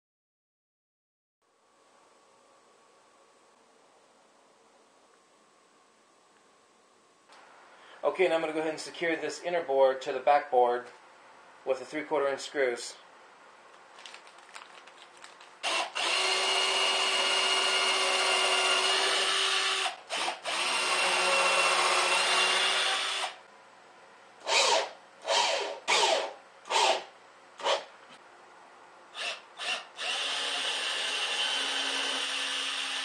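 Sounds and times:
cordless drill driving screws: 0:15.6 - 0:23.4, 0:24.4 - 0:27.9, 0:29.2 - 0:33.0.

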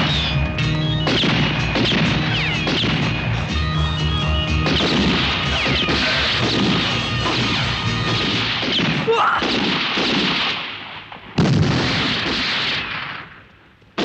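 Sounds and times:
gunfire: 0:00.0 - 0:03.5, 0:04.6 - 0:14.0
explosions: 0:01.0 - 0:03.5, 0:04.5 - 0:13.4
men shouting and crying: 0:03.3 - 0:08.1.

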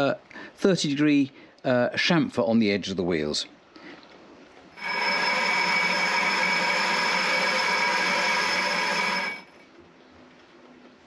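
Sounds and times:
lathe cutting metal with ringing tone: 0:04.8 - 0:09.6.

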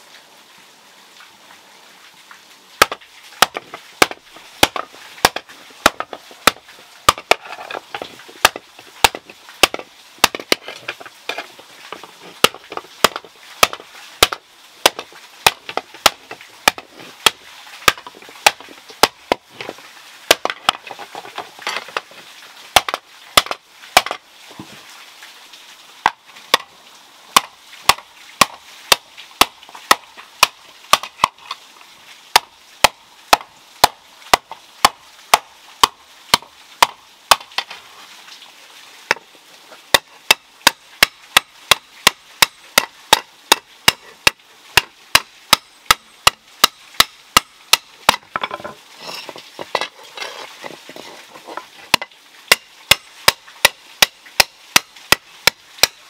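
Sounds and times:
soft shuffling: 0:48.6 - 0:51.9.

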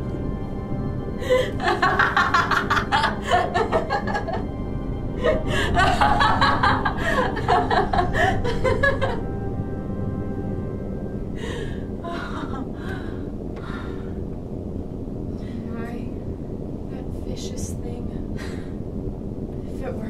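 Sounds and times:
background music drone: 0:00.0 - 0:20.0
woman laughing breathily: 0:01.2 - 0:04.5, 0:05.2 - 0:09.3, 0:11.4 - 0:14.0.

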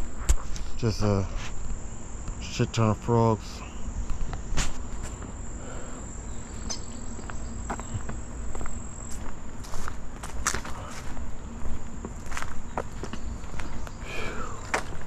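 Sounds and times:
high-pitched insect trill: 0:00.0 - 0:15.0
footsteps on concrete: 0:04.1 - 0:05.3, 0:06.5 - 0:15.0.

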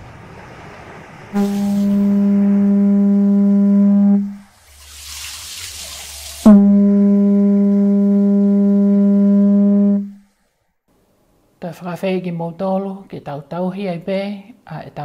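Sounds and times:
low horn blasts: 0:01.4 - 0:04.5, 0:06.4 - 0:10.2
rushing hiss: 0:04.4 - 0:06.5.

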